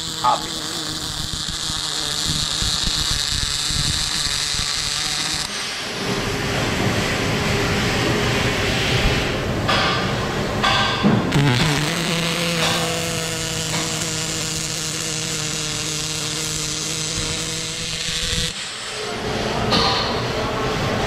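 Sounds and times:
welding arc crackling: 0.0 - 7.1, 10.6 - 19.0.

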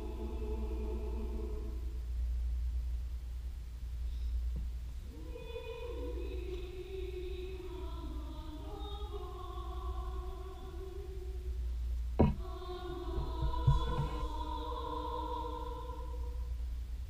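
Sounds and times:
mixed choir singing: 0.0 - 2.0, 5.1 - 11.6, 12.2 - 16.5
sharp knocks: 12.2 - 12.5, 13.2 - 14.3.

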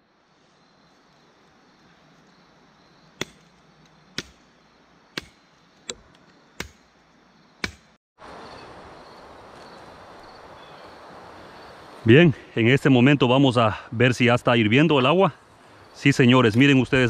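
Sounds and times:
sharp knocks: 3.2 - 3.5, 4.1 - 4.5, 5.2 - 6.9, 7.6 - 8.0.

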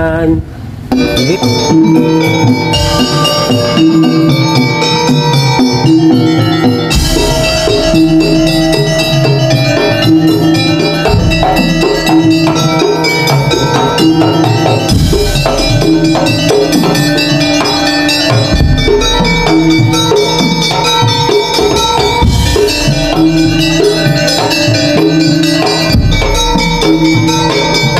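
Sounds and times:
barrel drums rhythm: 0.0 - 27.9
metal bars struck with mallets: 0.9 - 27.9
deep drum stroke: 6.8 - 14.2.

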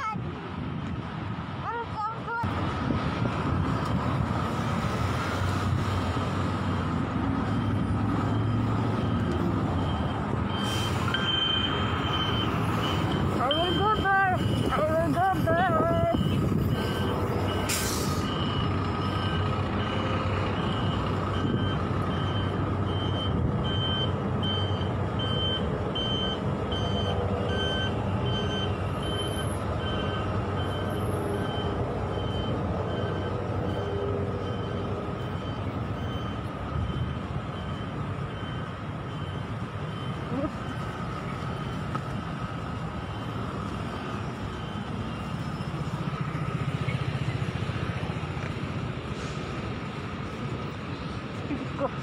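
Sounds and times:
bus engine running: 0.0 - 52.0
street traffic: 0.0 - 52.0
high electronic beep: 7.5 - 15.0, 15.8 - 40.9
air brakes hissing: 10.5 - 11.7, 17.6 - 18.4, 49.0 - 49.8.

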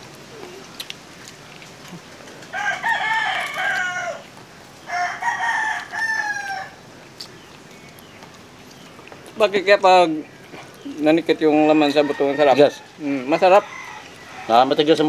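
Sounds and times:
rooster crowing: 2.5 - 6.8, 11.7 - 15.0.

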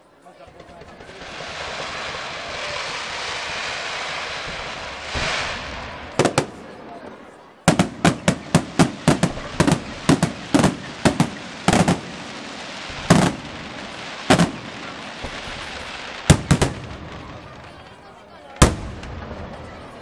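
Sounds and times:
steady hiss: 1.2 - 6.9, 7.7 - 17.6
firework shells bursting: 4.2 - 6.8, 7.7 - 17.5.

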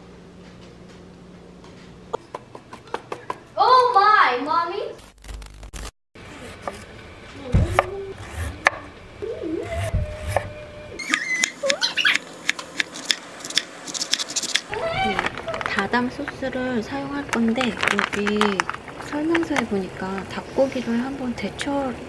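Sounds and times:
knife chopping on wooden board: 7.6 - 8.8, 11.1 - 14.7
short whining voice-like tones: 9.2 - 12.2.

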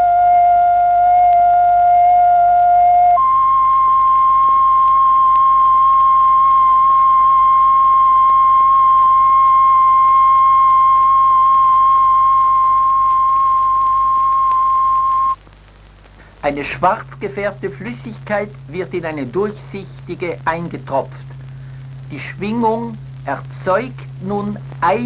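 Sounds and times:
steady electronic tone: 0.0 - 15.4.

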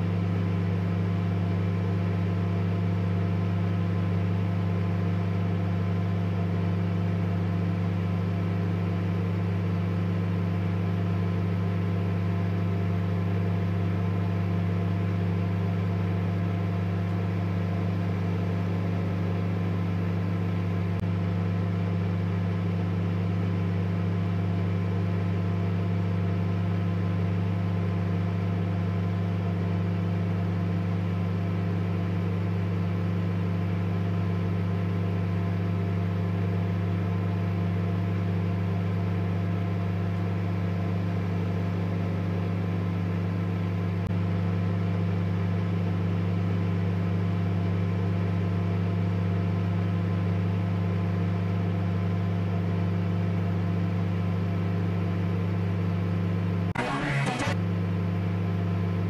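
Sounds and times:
short burst of noise: 56.8 - 57.6
steady low hum: 56.8 - 57.6.

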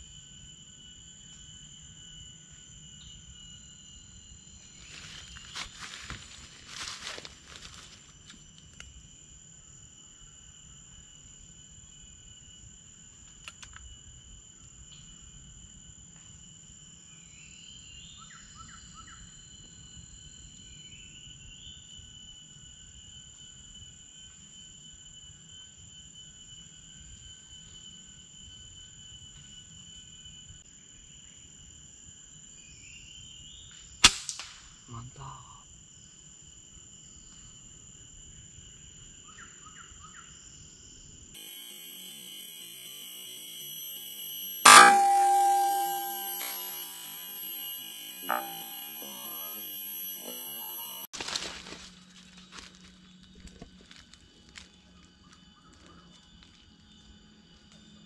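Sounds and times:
high insect drone: 0.0 - 58.0.

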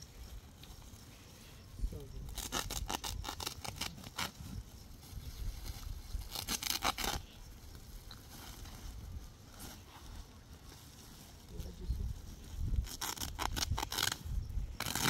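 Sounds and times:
plastic sack ripping: 2.2 - 4.6, 5.4 - 7.3, 12.6 - 15.0.

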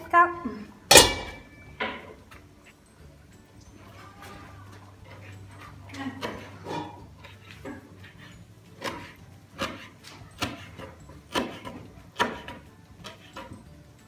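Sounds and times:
knife chopping on wooden board: 8.8 - 13.6.

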